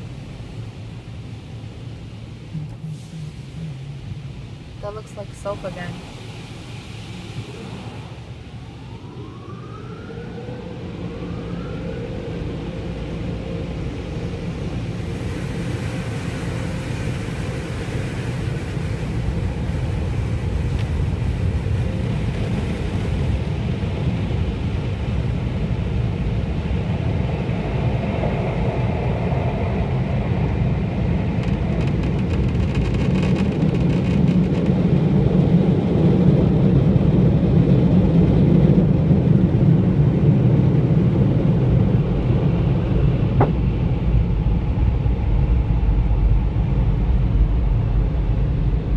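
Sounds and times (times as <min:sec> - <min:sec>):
car wash machinery rumble: 0:00.0 - 0:48.9.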